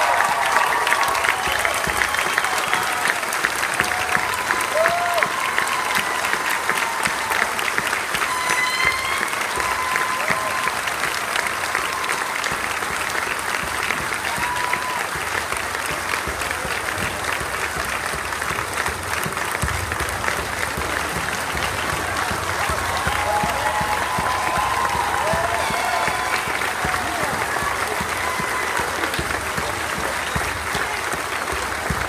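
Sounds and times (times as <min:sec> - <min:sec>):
audience applauding: 0:00.0 - 0:32.0
crowd calls: 0:00.0 - 0:32.0.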